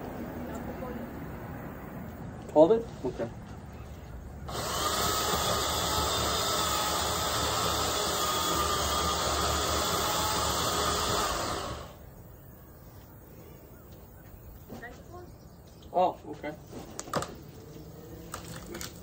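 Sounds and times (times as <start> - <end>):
chainsaw running: 4.5 - 12.0.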